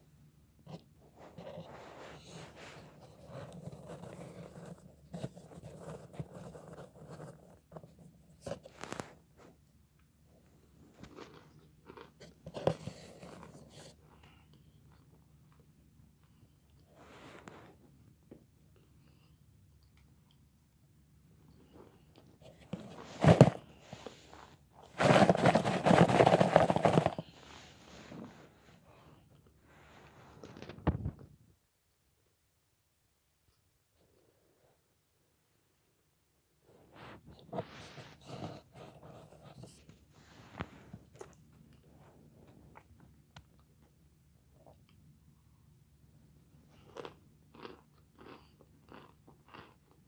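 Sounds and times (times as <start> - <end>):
scraping and rustling in cardboard box: 1.3 - 9.2, 22.4 - 28.6
chalky chunks crunching and scraping: 22.6 - 27.4.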